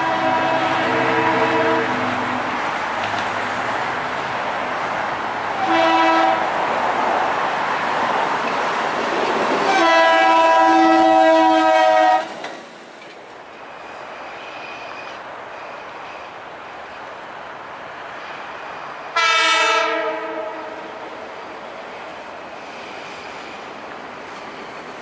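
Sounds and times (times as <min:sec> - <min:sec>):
train air horn blasts: 0:00.0 - 0:02.2, 0:05.6 - 0:06.5, 0:09.6 - 0:12.4, 0:19.1 - 0:21.3
train rumble: 0:00.0 - 0:25.0.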